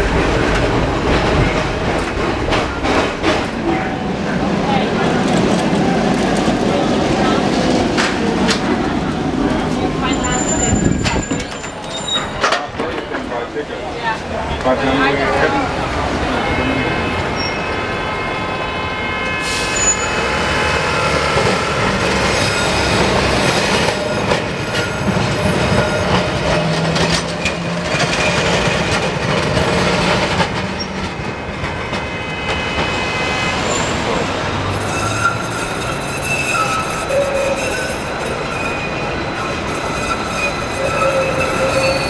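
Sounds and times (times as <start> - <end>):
tram wheels squealing: 5.4 - 13.3, 15.0 - 42.0
wheels clacking over rail joints: 21.3 - 33.1.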